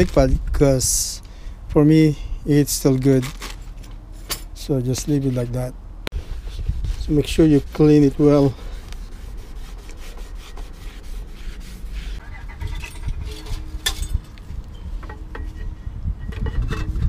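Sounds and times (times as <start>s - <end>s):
cloth rubbing on brake rotor: 6.1s - 13.8s.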